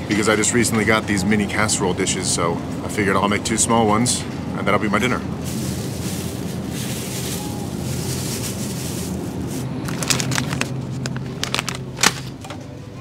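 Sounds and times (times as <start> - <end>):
steady low hum: 0.0 - 13.0
plastic packaging crinkling: 5.4 - 12.4.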